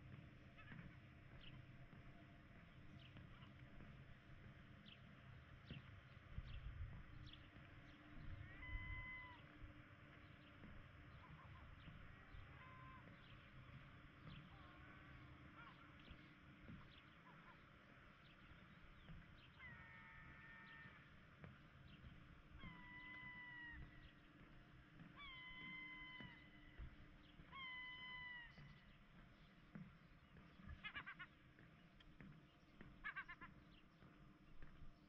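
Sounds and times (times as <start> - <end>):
drawn-out animal calls: 8.4 - 9.5, 11.1 - 13.7, 14.4 - 18.5, 19.5 - 21.2.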